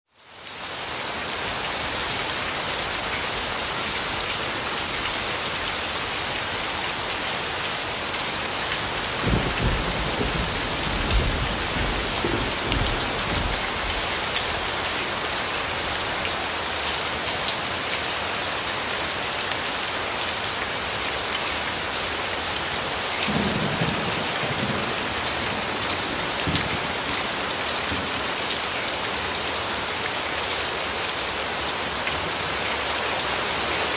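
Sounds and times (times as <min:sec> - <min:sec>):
steady rain hiss: 0:00.1 - 0:33.9
thunder rumbling: 0:09.1 - 0:14.3, 0:23.3 - 0:28.2.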